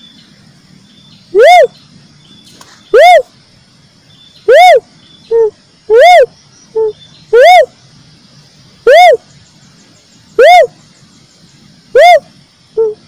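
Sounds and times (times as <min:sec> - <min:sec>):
dove whooping call: 0:01.3 - 0:01.8, 0:02.8 - 0:03.3, 0:04.4 - 0:07.8, 0:08.8 - 0:09.4, 0:10.3 - 0:10.9, 0:11.8 - 0:13.0.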